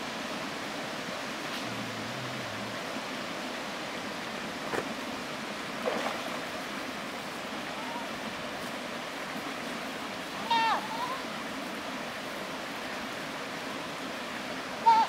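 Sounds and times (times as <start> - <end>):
stream over stones: 0.0 - 15.0
goat splashing in water: 5.8 - 6.6.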